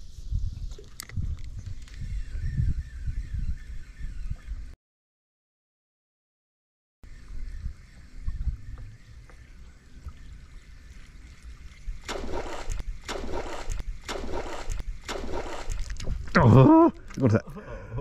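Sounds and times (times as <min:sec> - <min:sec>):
water splashing rhythmically: 0:07.9 - 0:16.2.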